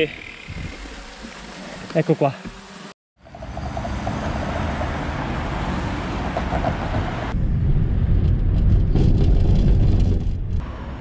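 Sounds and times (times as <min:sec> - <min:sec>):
cars passing on busy road: 0:03.2 - 0:08.7, 0:10.5 - 0:11.0
vehicle rumble from inside: 0:03.2 - 0:11.0.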